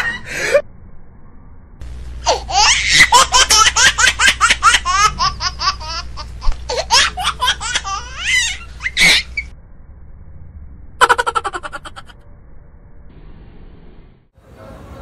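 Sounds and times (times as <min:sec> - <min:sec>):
young man laughing hard: 0:00.0 - 0:00.6, 0:11.0 - 0:12.1.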